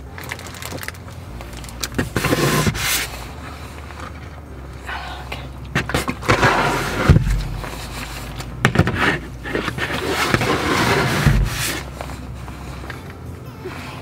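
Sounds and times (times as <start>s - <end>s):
containers knocking and scraping: 5.7s - 12.2s.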